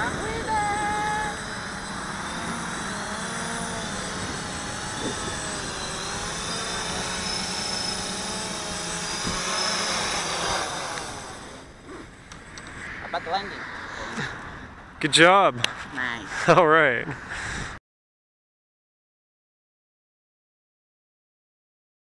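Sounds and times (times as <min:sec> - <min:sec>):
model aircraft motors whirring: 0:00.0 - 0:12.8.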